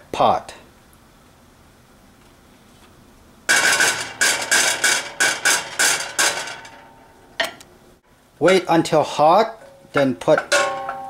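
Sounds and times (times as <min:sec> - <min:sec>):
wooden spoon knocking metal pot: 0:09.9 - 0:11.0.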